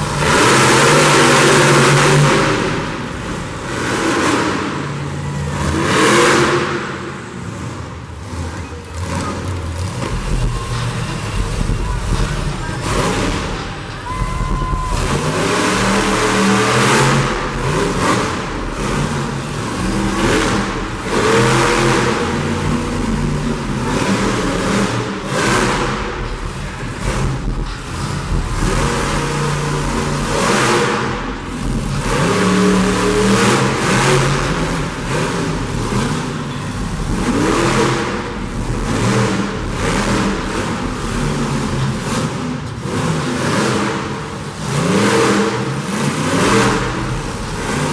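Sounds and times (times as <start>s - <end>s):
monster truck engine revving: 0.0s - 47.9s.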